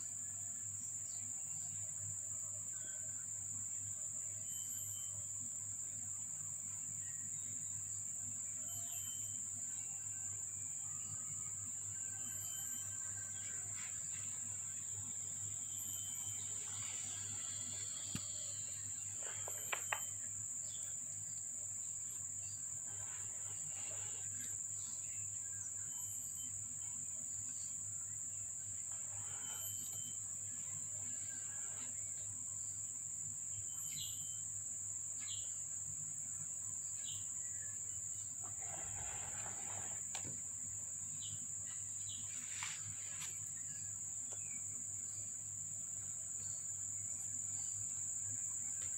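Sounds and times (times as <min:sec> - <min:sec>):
high-pitched insect drone: 0:04.2 - 0:07.4, 0:08.4 - 0:40.3.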